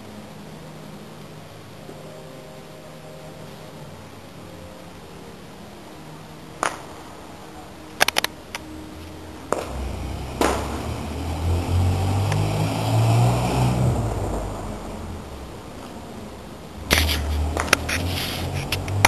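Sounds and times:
sharp pops: 9.5 - 11.0, 16.9 - 19.0
vehicle engine rumble passing: 9.5 - 19.0.

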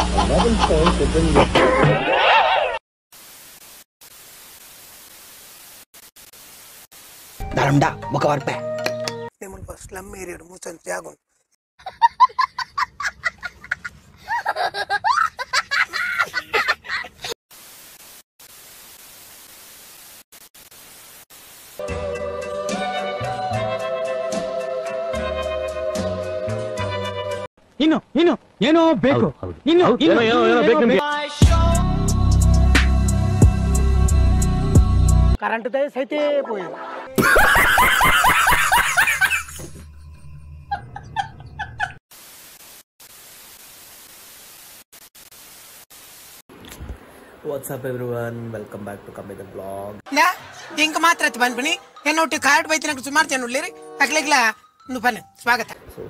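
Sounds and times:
man laughing loudly: 0.0 - 2.8, 11.8 - 17.4, 37.2 - 39.8, 40.7 - 42.0
tv static hiss: 3.1 - 7.7, 17.5 - 21.8, 42.1 - 51.3
child laughing and squealing: 11.8 - 17.3.

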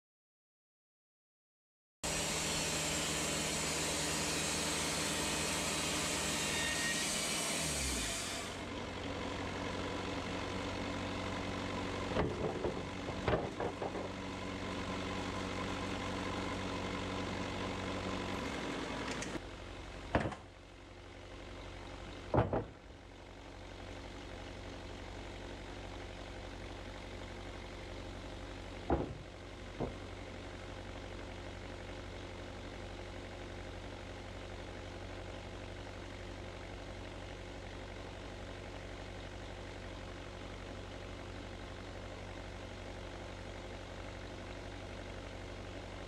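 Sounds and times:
sawmill engine running: 2.0 - 46.0
saw blade hissing through wood: 2.1 - 8.6
wooden slabs knocking: 12.2 - 14.2, 22.3 - 22.8, 28.9 - 30.1.

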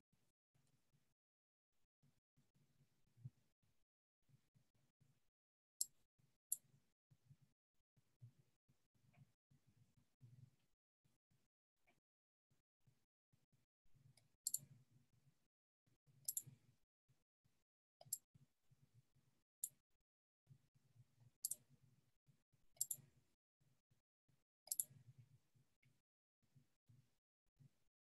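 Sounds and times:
computer mouse clicks: 14.2 - 14.7, 16.3 - 16.6, 18.0 - 18.2, 21.4 - 21.6, 22.8 - 23.1, 24.7 - 25.0.

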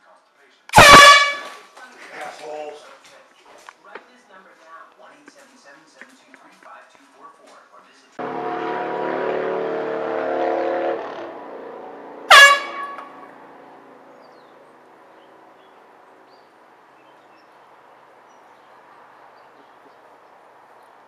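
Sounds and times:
loud horn blast falling in pitch: 0.8 - 1.6, 8.2 - 13.4
steady horn-like tone: 8.2 - 13.3.

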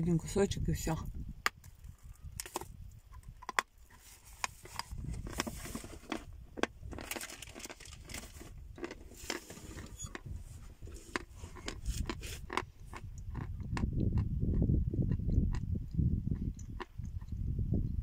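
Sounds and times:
wind rumble on microphone: 0.0 - 18.0
paper wrapping rustling: 6.9 - 10.0
chalk crunching while chewed: 7.0 - 17.4.

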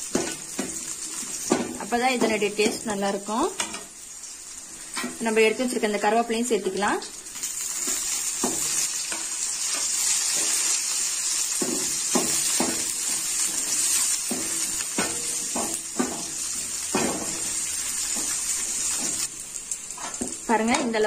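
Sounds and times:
food sizzling in hot oil: 0.0 - 21.0.

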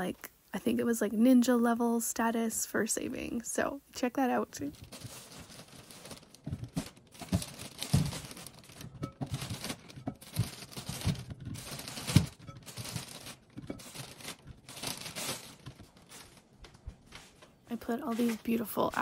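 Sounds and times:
plastic bag crinkling: 4.6 - 19.0
apples thudding into plastic bowl: 6.4 - 12.8.

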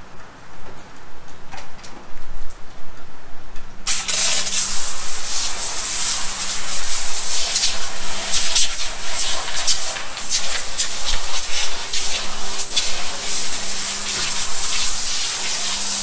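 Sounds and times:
foam sprayer hissing: 3.9 - 16.0.

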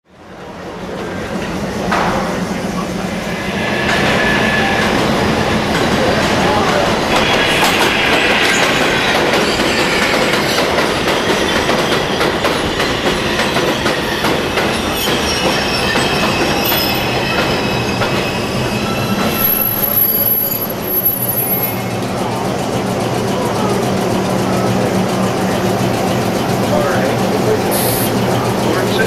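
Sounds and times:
train wheels rumbling on rails: 0.1 - 29.0
thin high steady tones: 2.4 - 12.2
wheel squeal: 2.8 - 22.0.

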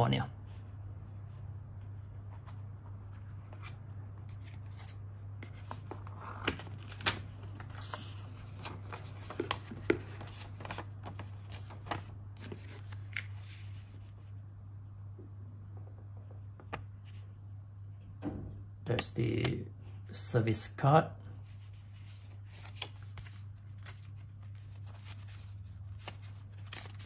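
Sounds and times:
steady low hum: 0.0 - 27.0
paper and cardboard rustling: 3.4 - 14.0, 22.0 - 27.0.

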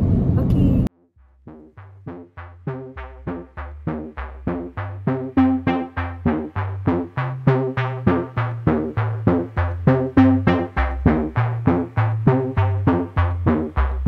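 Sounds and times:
low bass line: 0.0 - 14.0
melody of short notes: 1.5 - 13.4.

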